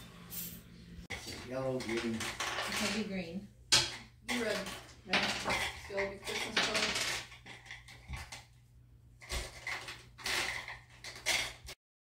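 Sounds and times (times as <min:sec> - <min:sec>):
people talking: 0:01.5 - 0:03.5, 0:04.3 - 0:07.0.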